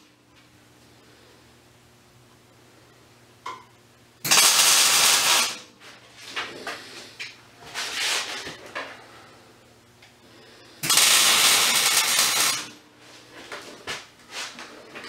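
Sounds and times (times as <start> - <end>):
loud hissing rustle: 10.8 - 12.7.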